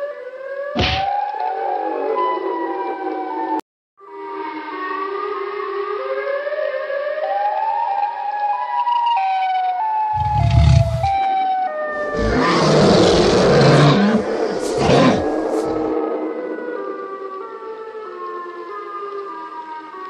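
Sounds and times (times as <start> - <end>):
heavy low thumps: 10.2 - 11.2
loud noisy roar: 10.2 - 11.2, 12.0 - 15.9.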